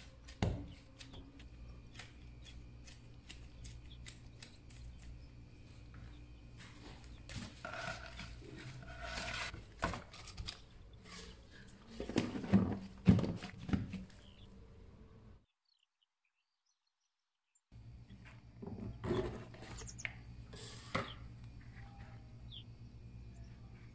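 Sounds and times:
plastic bowl scraping and rustling: 0:07.3 - 0:14.1, 0:18.6 - 0:21.8.

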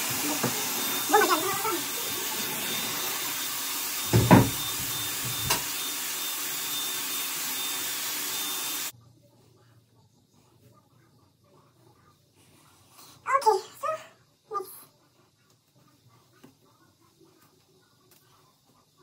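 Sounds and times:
hot-air hair styler blowing: 0:00.0 - 0:08.9.

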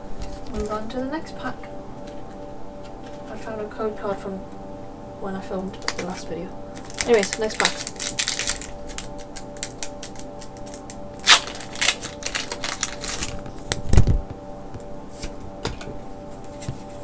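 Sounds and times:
foil wrapper crinkling: 0:05.8 - 0:14.2.

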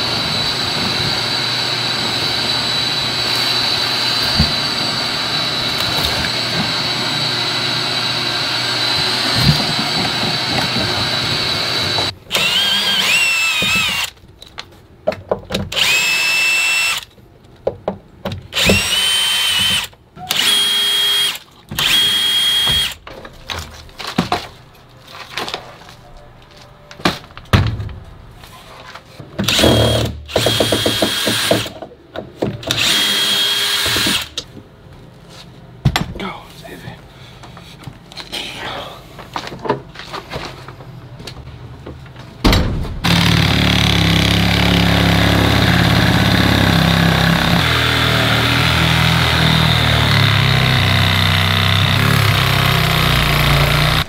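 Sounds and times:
shop vacuum whine: 0:00.0 - 0:13.2
cordless drill bursts: 0:11.1 - 0:14.1, 0:15.8 - 0:17.1, 0:18.6 - 0:23.0, 0:29.5 - 0:31.6, 0:32.7 - 0:34.3.

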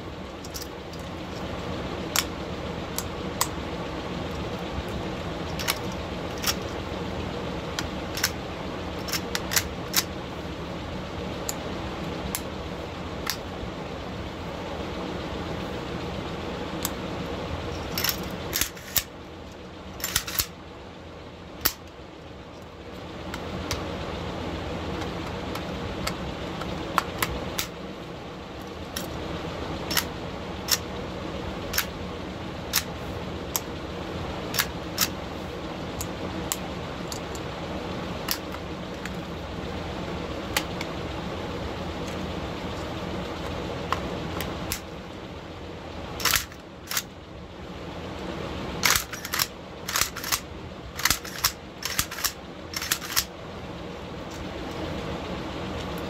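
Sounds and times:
steady background noise: 0:00.0 - 0:56.0
metal rifle parts clicking: 0:00.4 - 0:01.5, 0:05.5 - 0:06.7, 0:09.0 - 0:10.1, 0:17.8 - 0:19.1, 0:20.0 - 0:20.5, 0:46.2 - 0:47.1, 0:48.8 - 0:50.4, 0:51.0 - 0:53.3.

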